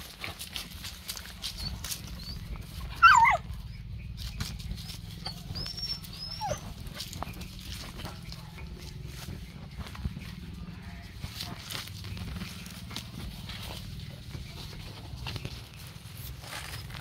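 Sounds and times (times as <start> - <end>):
movement over dry leaves: 0.0 - 17.0
dog crying: 1.6 - 3.5, 5.1 - 6.8.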